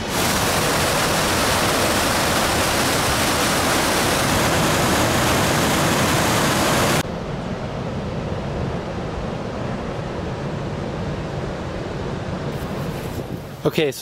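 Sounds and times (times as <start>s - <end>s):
waterfall rushing over rock: 0.0s - 7.0s.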